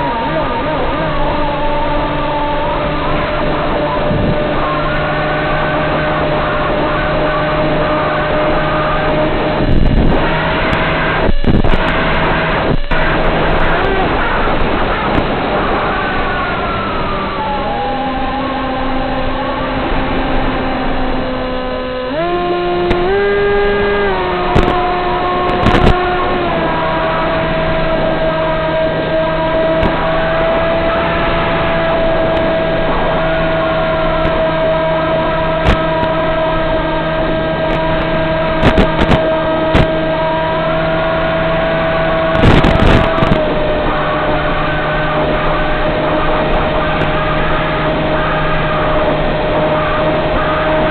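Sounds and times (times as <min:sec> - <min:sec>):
electric motor and propeller hum: 0:00.0 - 0:50.9
rushing air: 0:02.8 - 0:21.0
sharp crackles: 0:22.9 - 0:40.2.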